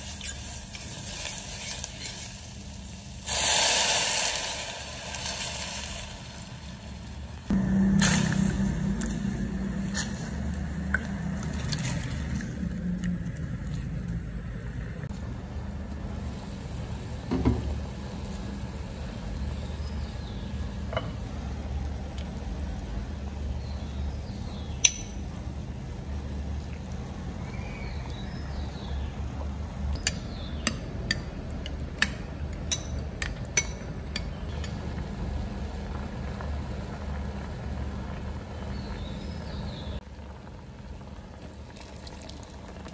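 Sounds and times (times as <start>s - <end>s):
low hum: 7.3s - 33.2s.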